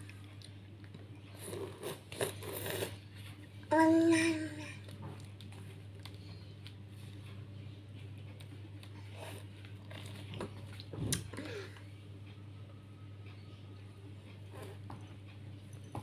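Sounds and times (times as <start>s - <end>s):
steady low hum: 0.0s - 16.0s
child licking and slurping: 1.4s - 3.0s.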